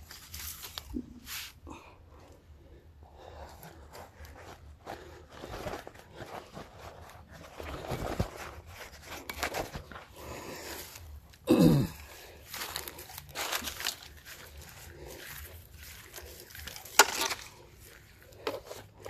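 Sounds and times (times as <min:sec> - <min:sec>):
hand tool scraping soil: 0:12.4 - 0:19.0.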